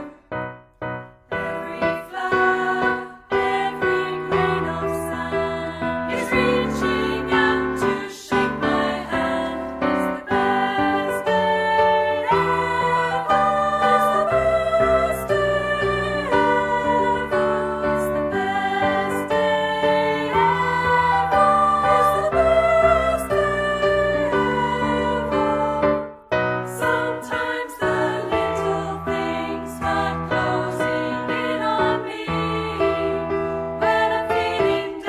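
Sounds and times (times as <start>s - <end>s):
piano accompaniment: 0.0s - 35.0s
people singing: 1.3s - 35.0s.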